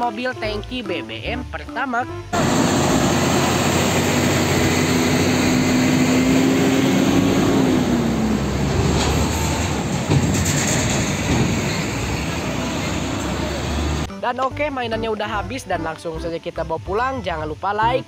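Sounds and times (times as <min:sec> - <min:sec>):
rumble of truck engines and tyres: 0:02.1 - 0:15.5.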